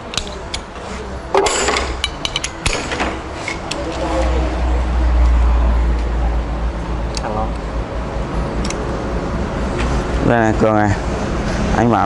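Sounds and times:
wrench clinking on metal: 0:01.4 - 0:03.8.

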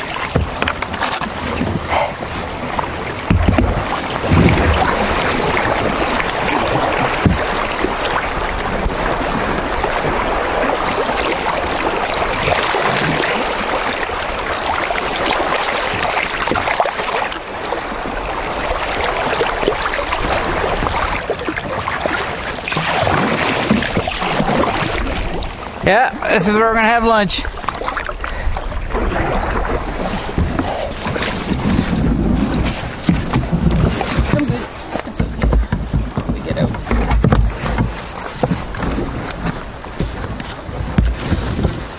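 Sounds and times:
river water rushing: 0:00.0 - 0:41.9
dull knocks: 0:00.3 - 0:01.0, 0:03.2 - 0:05.0, 0:07.2 - 0:07.5, 0:33.0 - 0:41.9.

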